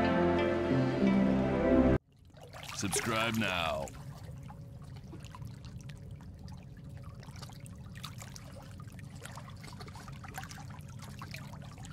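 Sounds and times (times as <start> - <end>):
water trickling and splashing: 2.0 - 11.9.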